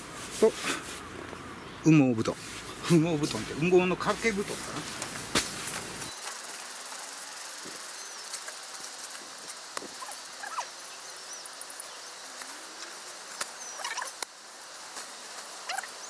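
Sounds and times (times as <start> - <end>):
short chirping calls: 9.8 - 14.2.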